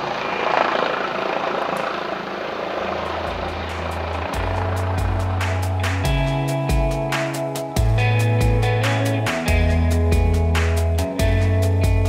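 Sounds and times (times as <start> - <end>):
bass line: 3.0 - 12.0.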